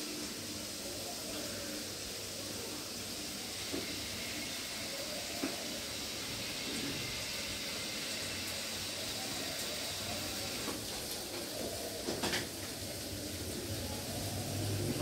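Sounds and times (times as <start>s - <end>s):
vegetables sizzling in a pan: 0.0s - 15.0s.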